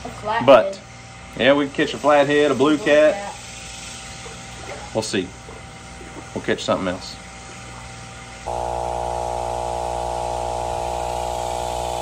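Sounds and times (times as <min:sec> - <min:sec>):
low mechanical drone: 0:08.4 - 0:12.0.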